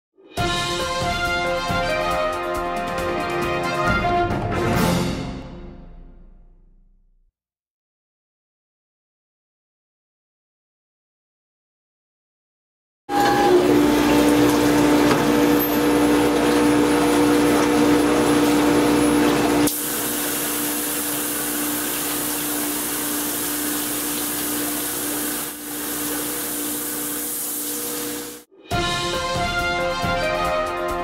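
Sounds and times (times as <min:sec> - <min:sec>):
machine humming: 0:13.1 - 0:28.4
water spraying hiss: 0:19.6 - 0:28.5.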